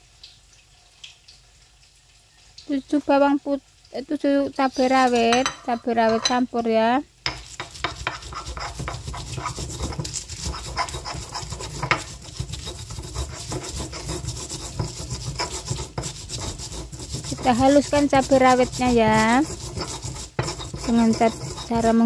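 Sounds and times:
pestle knocking mortar: 7.3s - 22.0s
stone pestle grinding in mortar: 7.3s - 22.0s.

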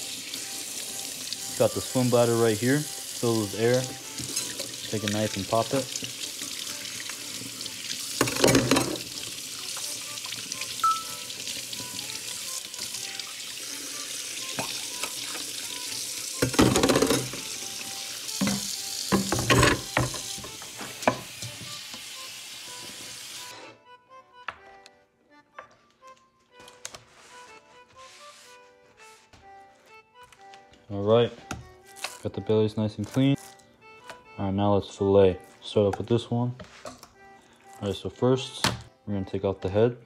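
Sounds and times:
faucet running into steel sink: 0.0s - 22.3s.

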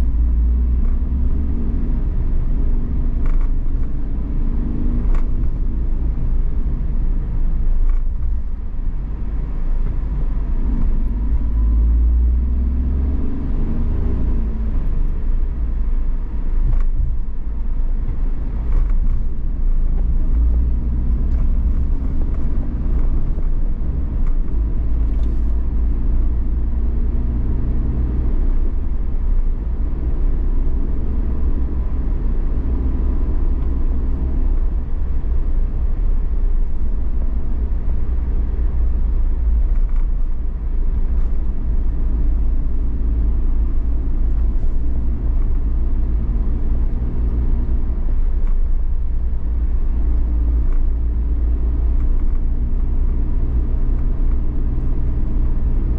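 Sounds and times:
car road and engine rumble: 0.0s - 55.9s.

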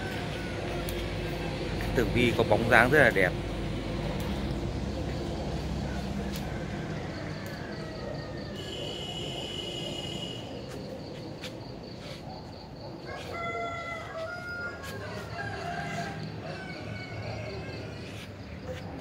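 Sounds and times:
rooster crowing: 0.0s - 2.8s, 5.8s - 10.2s, 13.0s - 18.7s.

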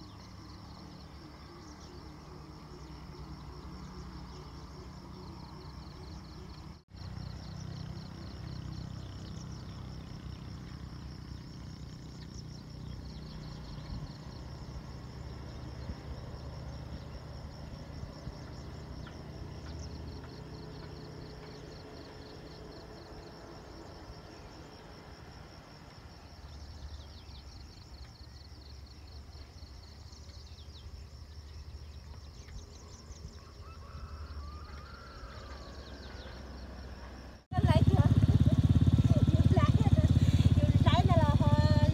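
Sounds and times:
insect trill: 0.0s - 41.9s
bird calls: 29.8s - 37.2s.

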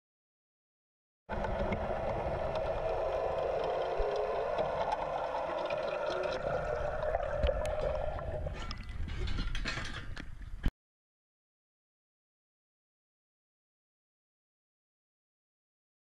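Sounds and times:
muffled underwater hum: 1.3s - 9.6s.

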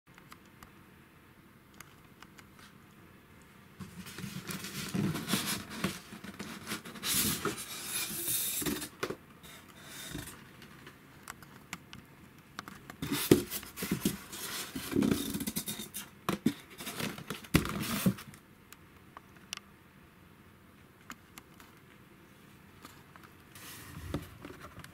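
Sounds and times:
cardboard and foam scraping: 3.8s - 8.9s.

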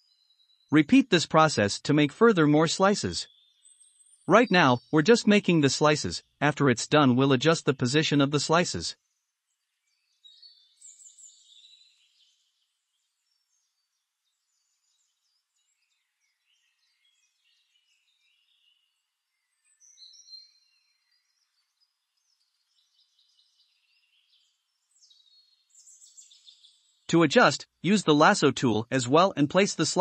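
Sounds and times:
faint high chirps: 0.0s - 8.9s.

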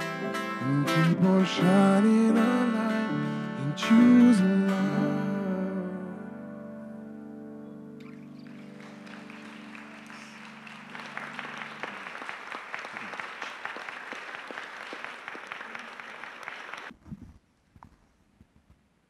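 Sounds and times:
acoustic guitar chord ringing: 0.0s - 8.3s
audience applauding: 8.0s - 16.9s.

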